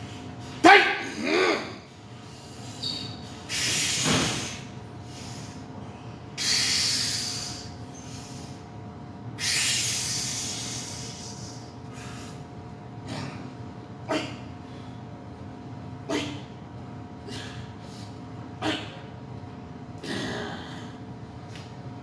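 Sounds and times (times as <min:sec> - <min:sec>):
man exhaling forcefully: 0:03.5 - 0:05.6, 0:06.4 - 0:08.6, 0:09.4 - 0:12.4, 0:17.3 - 0:18.0.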